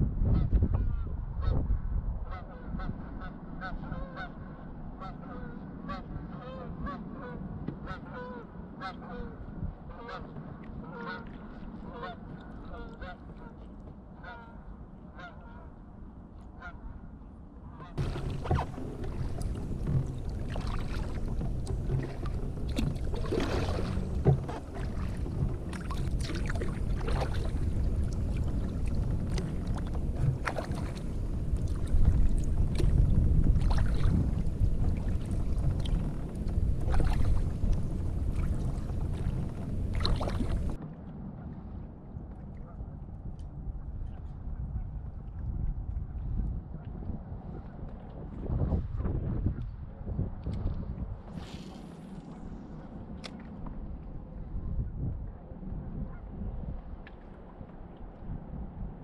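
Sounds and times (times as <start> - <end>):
wind buffeting microphone: 0.0 - 4.6, 18.0 - 40.8, 41.6 - 59.0
wind rumble: 0.0 - 13.5, 16.7 - 59.0
paddle splashing in water: 17.9 - 41.1, 50.4 - 54.6.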